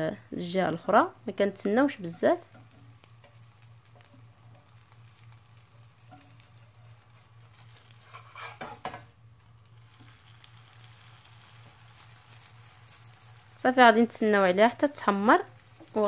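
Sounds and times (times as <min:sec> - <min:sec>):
flatbread sizzling in a pan: 0:00.7 - 0:16.0
spatula scraping a pan: 0:02.5 - 0:09.1.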